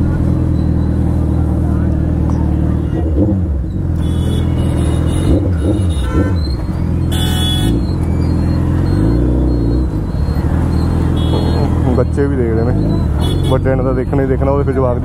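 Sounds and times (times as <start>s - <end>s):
vehicle engine running: 0.0s - 15.0s
short horn toots: 4.0s - 6.5s, 7.1s - 7.8s.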